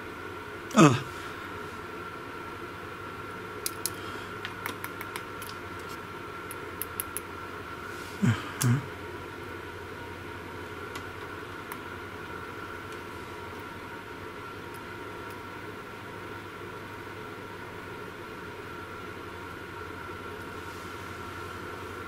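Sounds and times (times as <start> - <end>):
short low vocal sounds: 0.7 - 1.3, 8.2 - 9.0.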